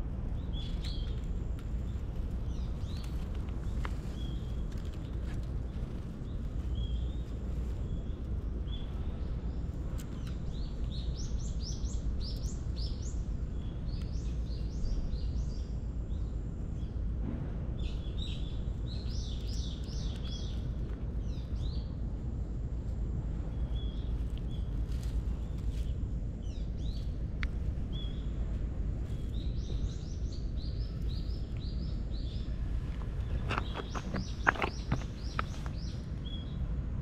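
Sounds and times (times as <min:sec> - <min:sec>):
steady low rumble: 0:00.0 - 0:37.0
small birds chirping: 0:00.3 - 0:17.1, 0:17.8 - 0:22.3, 0:23.3 - 0:36.8.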